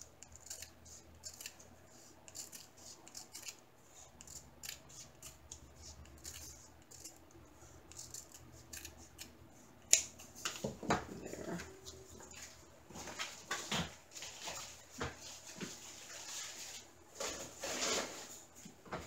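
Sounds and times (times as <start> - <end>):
scissors snipping paper: 0.2 - 3.6, 4.2 - 10.3.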